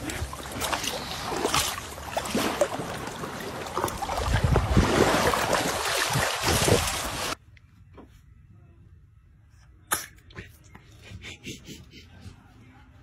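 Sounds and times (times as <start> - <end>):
water splashing around swimming dogs: 0.0 - 7.4.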